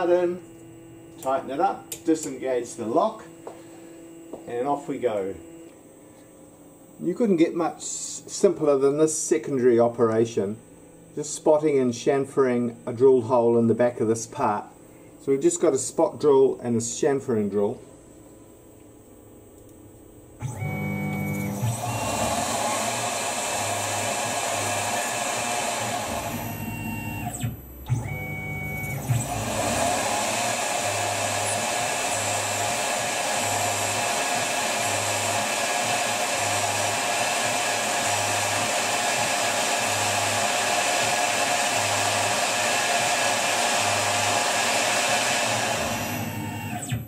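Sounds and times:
drill cutting noise: 20.4s - 47.0s
lathe motor whirring: 20.4s - 47.0s.

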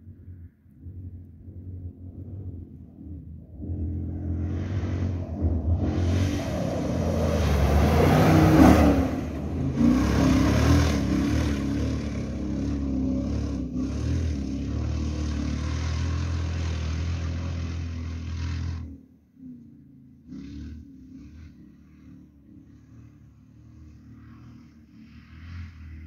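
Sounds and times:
engine revving hard: 3.7s - 19.0s.

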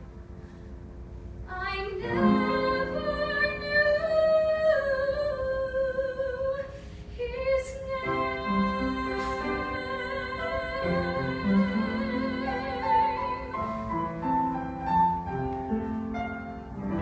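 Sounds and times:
woman singing ballad: 1.5s - 13.6s.

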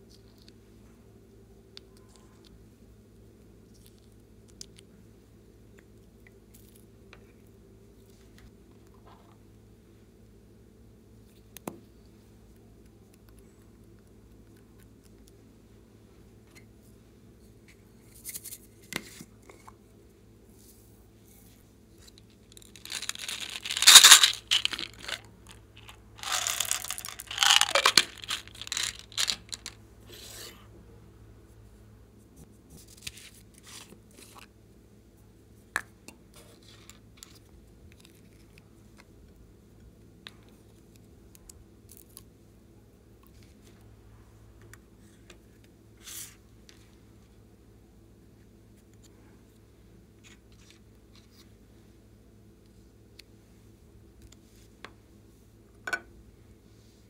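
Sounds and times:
loud crackling rattle: 22.6s - 25.2s, 25.8s - 29.8s.

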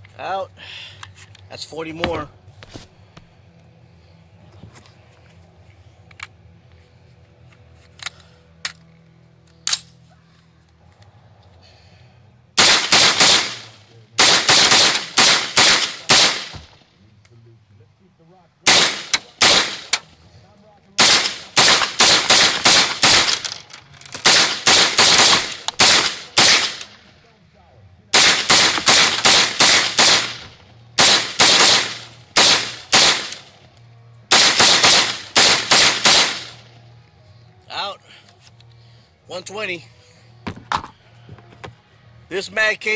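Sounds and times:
rifle handling clicks: 7.5s - 10.0s
semi-automatic rifle shots: 12.6s - 16.8s, 18.6s - 20.1s, 21.0s - 27.1s, 28.1s - 33.6s, 34.3s - 36.7s.

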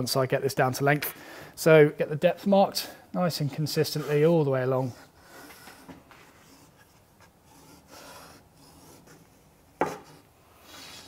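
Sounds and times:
marking gauge scratching wood: 3.6s - 11.0s.

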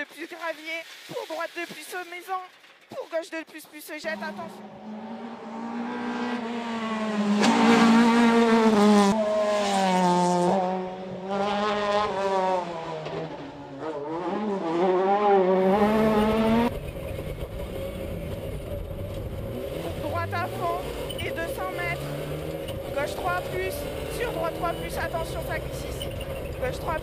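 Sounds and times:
rally car engine revving: 4.0s - 27.0s
car engine drone inside cabin: 15.5s - 27.0s.

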